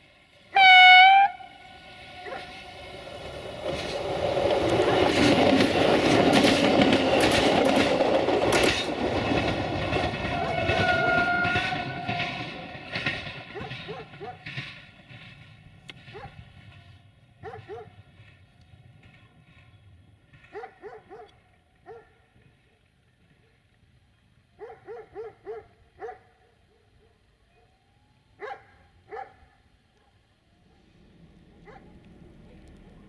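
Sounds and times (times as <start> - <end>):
dog barking: 2.2 - 2.6, 13.5 - 14.5, 16.1 - 16.4, 17.4 - 18.0, 20.5 - 22.2, 24.6 - 27.8, 28.4 - 30.2, 31.6 - 32.0.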